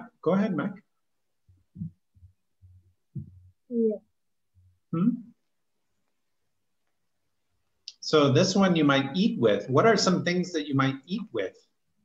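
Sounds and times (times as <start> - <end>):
garbled voice over video call: 3.2 - 4.2, 4.8 - 5.4.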